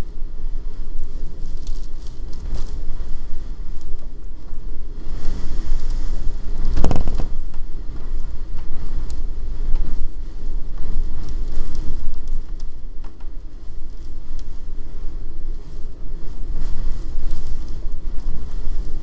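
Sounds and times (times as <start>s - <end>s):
blizzard wind buffeting microphone: 0.0s - 19.0s
scattered crackles: 0.0s - 19.0s
wind-driven snow hissing: 0.0s - 19.0s.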